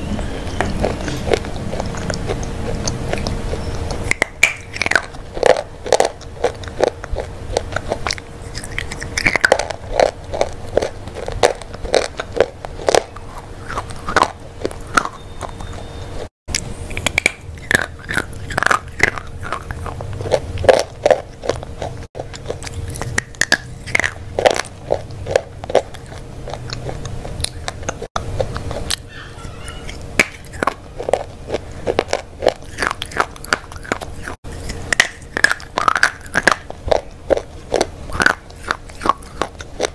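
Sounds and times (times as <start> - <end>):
chewing: 0.0 - 39.9
crunchy bar crunching: 0.0 - 39.9
faint steady hum: 0.0 - 39.9.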